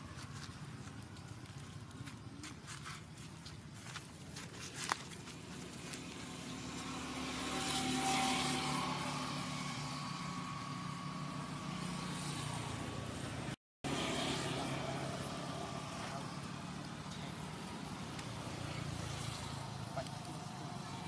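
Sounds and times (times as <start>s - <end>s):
vehicle engine passing: 5.6s - 21.0s.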